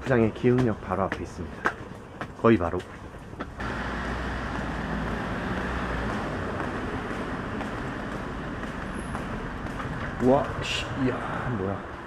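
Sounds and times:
car driving rumble: 0:03.6 - 0:12.0.

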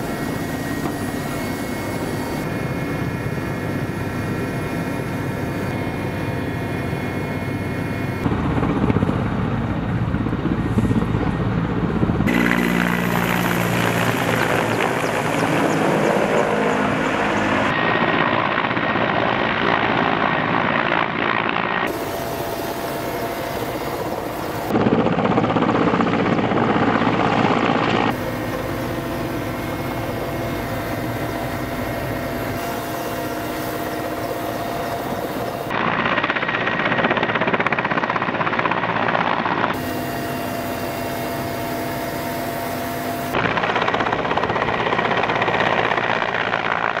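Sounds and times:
helicopter hovering: 0:00.0 - 0:47.0
rotor downwash rushing noise: 0:12.2 - 0:17.8.

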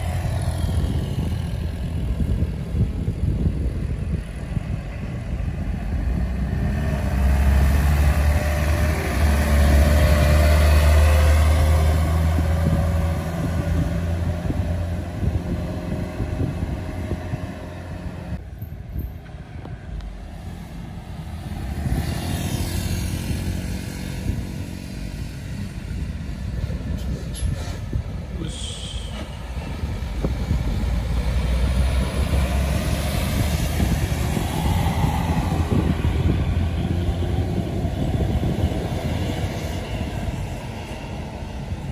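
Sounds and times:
bus engine approaching: 0:00.0 - 0:41.9
truck engine rumbling: 0:00.0 - 0:41.9.

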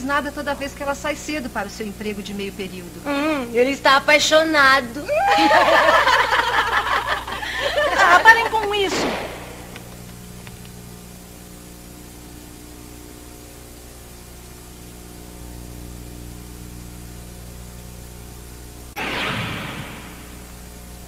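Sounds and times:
low electrical hum: 0:00.0 - 0:21.0
steady hiss: 0:00.0 - 0:21.0
short sudden loud sound: 0:19.0 - 0:20.7.

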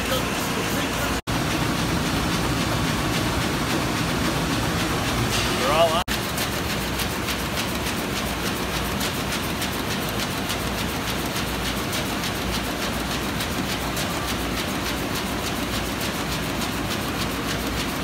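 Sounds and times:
printing press clattering: 0:00.0 - 0:18.0.

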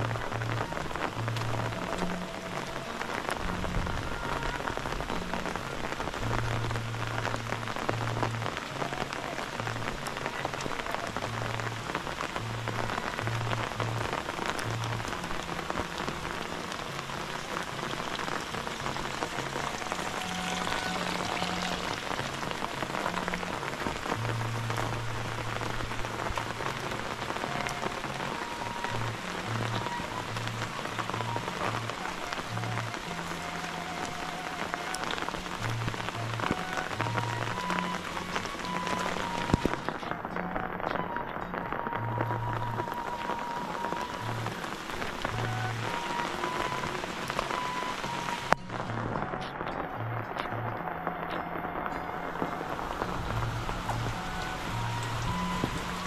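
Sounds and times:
heavy rain falling: 0:00.0 - 0:56.0.

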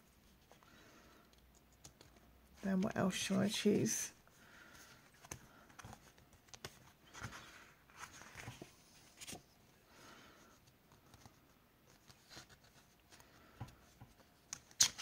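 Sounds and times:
paper rustling: 0:05.2 - 0:09.5.

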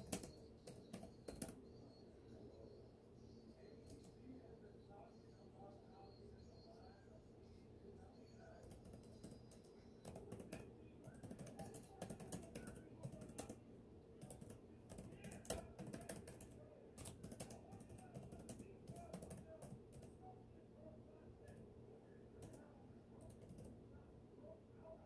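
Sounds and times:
computer keyboard typing: 0:00.0 - 0:01.6, 0:03.8 - 0:04.2, 0:08.5 - 0:13.6, 0:14.2 - 0:20.2, 0:22.4 - 0:23.8.

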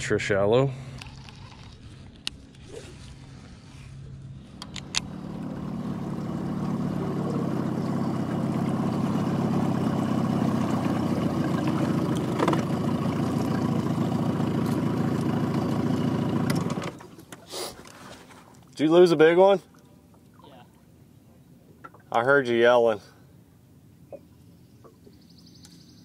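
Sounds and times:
outboard motor running: 0:01.0 - 0:26.0.

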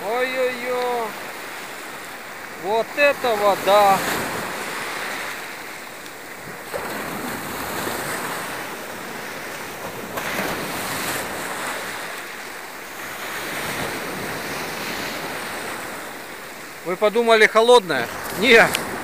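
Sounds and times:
small waves washing on sand: 0:00.0 - 0:19.0.

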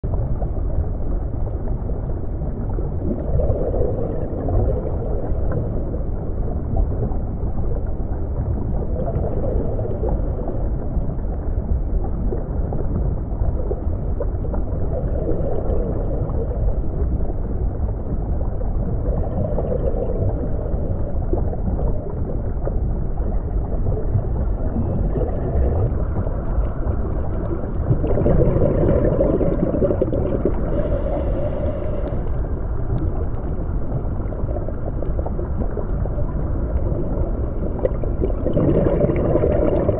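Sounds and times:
underwater low rumble: 0:00.0 - 0:39.9.

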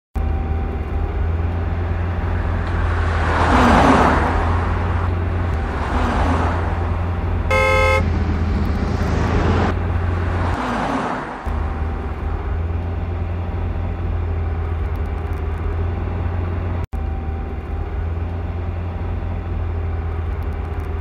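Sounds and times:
vehicle passing on road: 0:00.2 - 0:21.0
car horn toot: 0:07.5 - 0:08.2.

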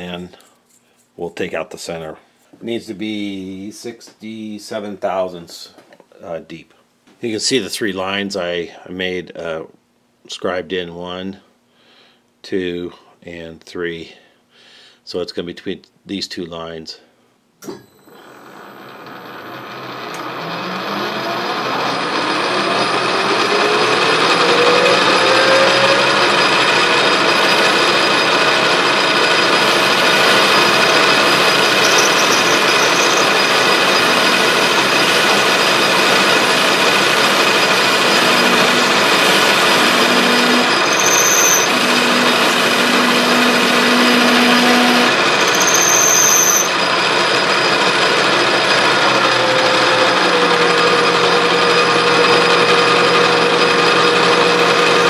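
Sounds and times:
high squeals from cutting tool: 0:18.1 - 0:46.9, 0:48.4 - 0:55.0
lathe running hum: 0:18.1 - 0:55.0
lathe cutting metal: 0:18.2 - 0:55.0.

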